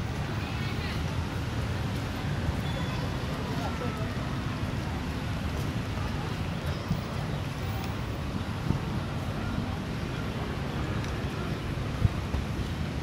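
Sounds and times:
outdoor ambience: 0:00.0 - 0:13.0
wind on microphone: 0:11.3 - 0:13.0.

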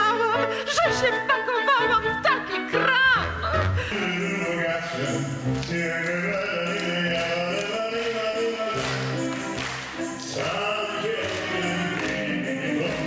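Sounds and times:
instrumental accompaniment: 0:00.0 - 0:13.0
man singing: 0:03.8 - 0:13.0.

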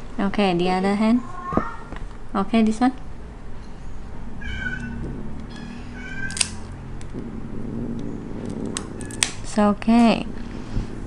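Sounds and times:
cat meowing: 0:01.2 - 0:02.0, 0:04.3 - 0:06.7
nail clippers snipping: 0:06.3 - 0:07.2, 0:08.4 - 0:09.4.

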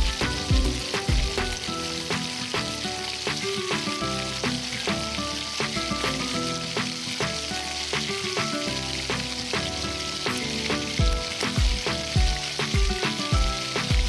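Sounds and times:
background music with beat: 0:00.0 - 0:14.0
chicken sizzling in hot oil: 0:00.0 - 0:14.0.

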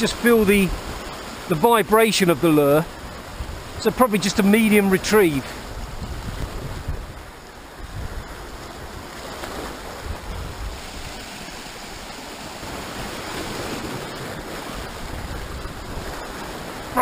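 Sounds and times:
surf washing over rocks: 0:00.0 - 0:17.0
wind buffeting microphone: 0:02.9 - 0:04.4, 0:05.0 - 0:17.0.

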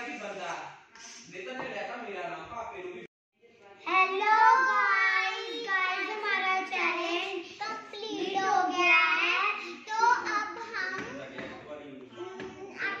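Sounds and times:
young girls singing: 0:03.9 - 0:11.3.

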